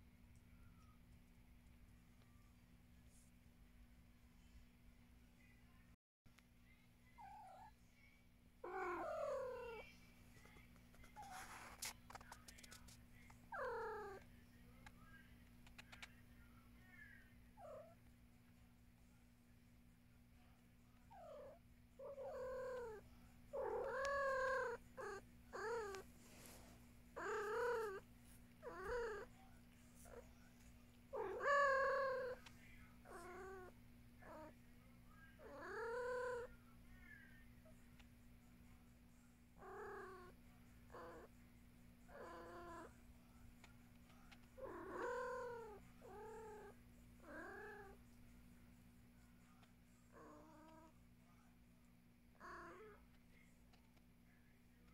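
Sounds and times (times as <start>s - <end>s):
cats meowing: 23.6s - 26.0s, 27.2s - 28.0s, 28.6s - 29.3s, 31.1s - 32.4s, 44.6s - 48.0s.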